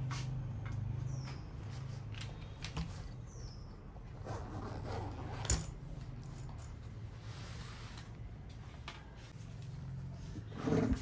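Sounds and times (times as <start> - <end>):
zipper pulled open: 4.1 - 5.8.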